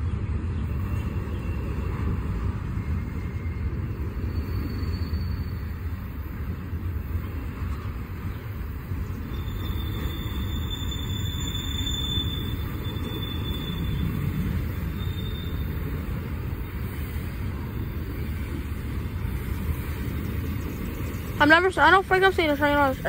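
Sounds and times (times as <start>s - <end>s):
freight train rumbling on rails: 0.0s - 23.0s
faint high wheel squeal: 2.6s - 6.0s, 9.2s - 17.0s.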